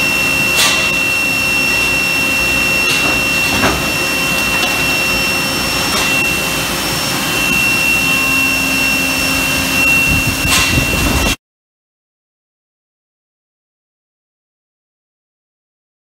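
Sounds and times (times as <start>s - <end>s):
high-pitched machine whine: 0.0s - 11.4s
industrial machine noise: 0.0s - 11.4s.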